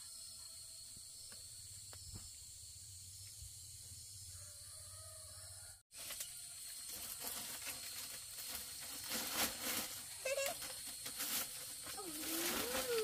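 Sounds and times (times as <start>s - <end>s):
high insect hum: 0.0s - 13.0s
rustling and crackling: 6.0s - 13.0s.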